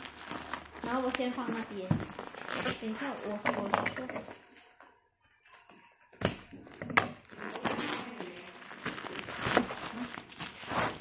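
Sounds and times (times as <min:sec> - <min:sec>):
plastic mailer tearing and rustling: 0:00.0 - 0:03.4, 0:06.7 - 0:11.0
bubble wrap crinkling: 0:00.0 - 0:04.8, 0:06.2 - 0:11.0.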